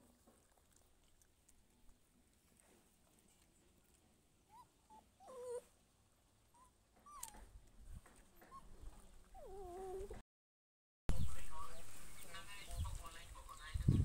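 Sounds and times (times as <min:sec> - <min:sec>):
puppy whimpering: 0:04.5 - 0:05.7, 0:06.5 - 0:07.5, 0:08.4 - 0:10.2.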